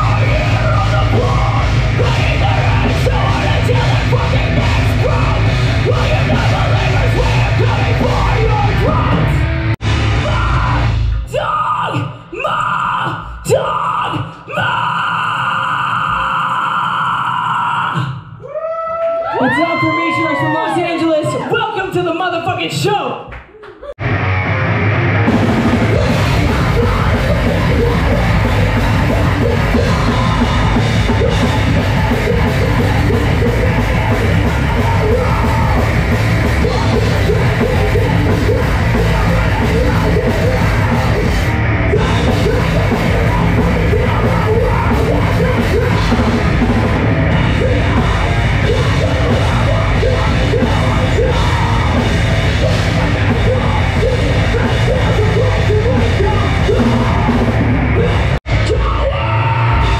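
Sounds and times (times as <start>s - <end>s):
screamed vocals: 0.0s - 9.4s, 10.1s - 21.9s, 25.6s - 59.9s
drum kit: 0.0s - 11.4s, 24.0s - 59.9s
heavy metal music: 0.0s - 17.8s, 24.0s - 59.9s
distorted guitars: 0.0s - 18.1s, 24.0s - 59.9s.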